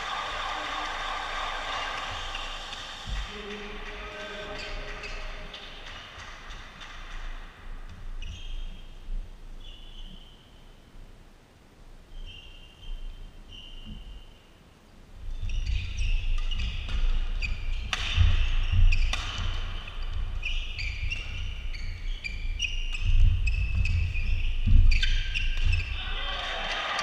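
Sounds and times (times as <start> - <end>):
shoes squeaking on court floor: 1.7 - 10.7, 12.1 - 14.5, 15.2 - 26.0
rackets hitting shuttlecock: 17.8 - 19.7.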